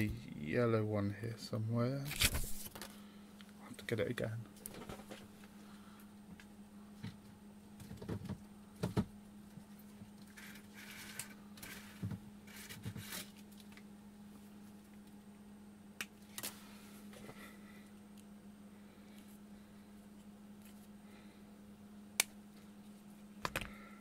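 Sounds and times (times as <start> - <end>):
faint low hum: 0.0 - 24.0
wire and small parts handled: 9.5 - 13.9, 20.1 - 20.9.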